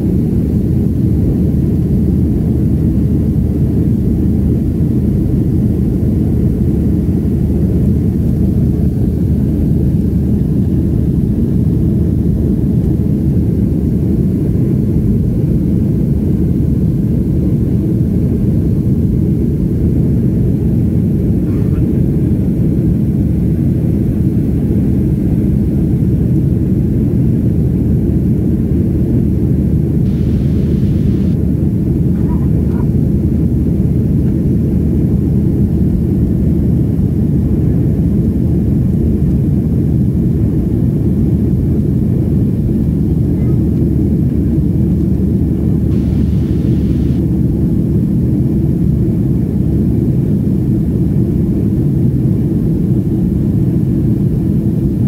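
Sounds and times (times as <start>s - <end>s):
jet engines rumbling: 0.0s - 55.0s
air rushing over fuselage: 29.6s - 33.4s, 44.4s - 47.8s.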